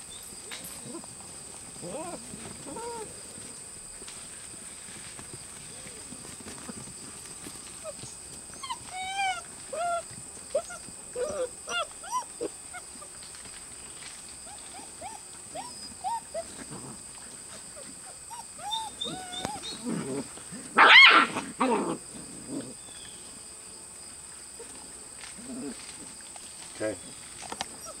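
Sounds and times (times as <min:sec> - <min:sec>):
puppies yipping and squealing: 0:07.7 - 0:13.1, 0:14.5 - 0:16.8, 0:17.4 - 0:21.7, 0:27.4 - 0:28.0
puppy yelp: 0:08.6 - 0:13.1, 0:14.5 - 0:16.6, 0:18.0 - 0:20.0, 0:20.8 - 0:21.7.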